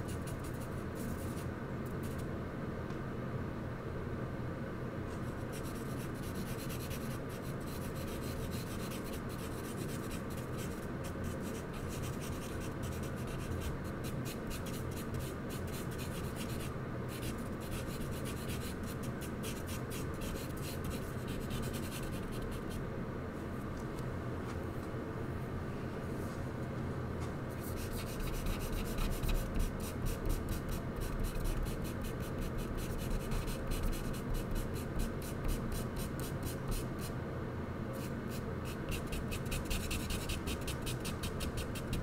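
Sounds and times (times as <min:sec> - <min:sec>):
steady low hum: 0:00.0 - 0:42.0
charcoal scratching on paper: 0:27.6 - 0:36.9, 0:38.0 - 0:42.0.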